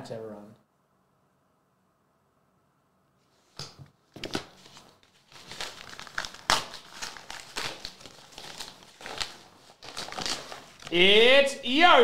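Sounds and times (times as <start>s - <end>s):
paper mailer bag crinkling: 4.2s - 11.1s.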